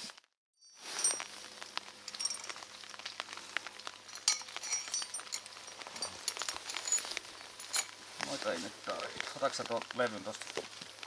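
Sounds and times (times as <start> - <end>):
metallic clinks: 0.6 - 1.4, 2.1 - 2.7, 4.0 - 8.0
light clicks and rustles: 1.0 - 11.0.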